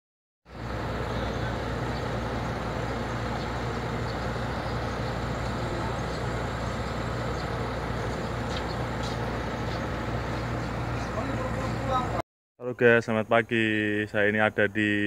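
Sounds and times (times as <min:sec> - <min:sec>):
diesel engine running: 0:00.5 - 0:12.2.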